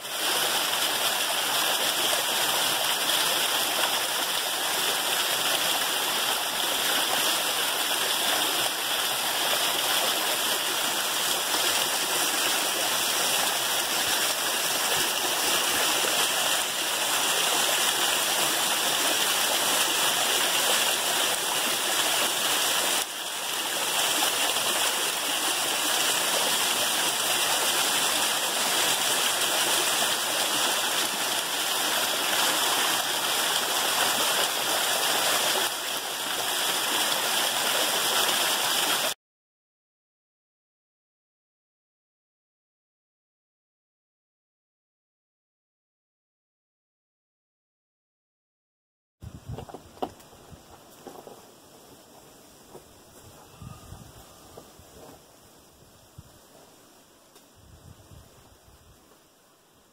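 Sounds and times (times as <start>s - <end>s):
waterfall splashing on rocks: 0.0s - 39.2s.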